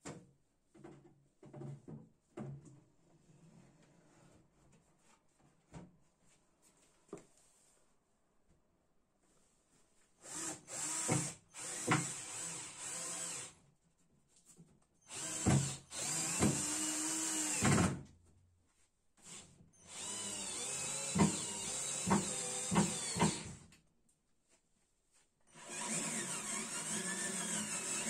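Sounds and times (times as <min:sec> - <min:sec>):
cordless drill drilling into wood: 0:10.2 - 0:13.6, 0:15.1 - 0:18.0, 0:19.2 - 0:23.7, 0:25.5 - 0:28.0.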